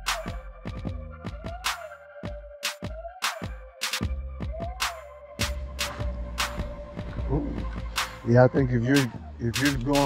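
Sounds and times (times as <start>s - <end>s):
pulsing bass: 0.0s - 1.7s, 5.4s - 10.0s
electronic music with drum beat: 0.0s - 10.0s.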